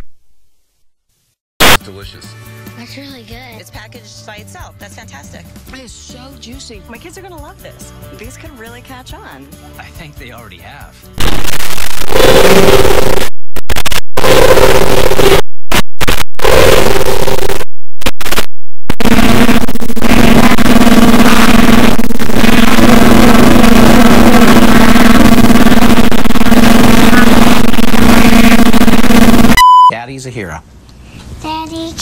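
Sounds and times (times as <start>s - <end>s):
harsh distorted noise: 1.6s - 1.8s, 11.2s - 29.7s
loud buzzing drone: 16.4s - 17.6s, 19.0s - 29.6s.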